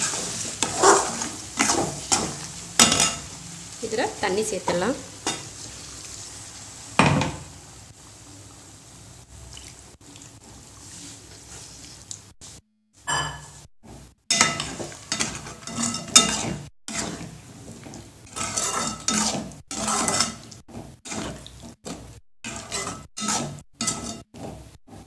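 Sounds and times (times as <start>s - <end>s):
metal ladle scraping a pot: 14.3s - 25.0s.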